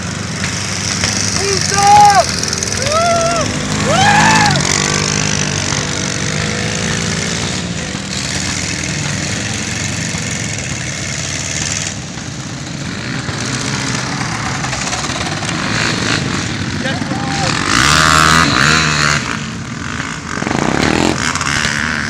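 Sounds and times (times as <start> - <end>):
quad bike engines revving: 0.0 - 22.0
people whooping: 1.6 - 4.8.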